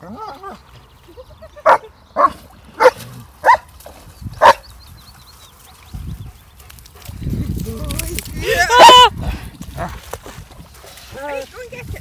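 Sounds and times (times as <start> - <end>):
dog barking: 1.7 - 3.7, 4.4 - 4.6.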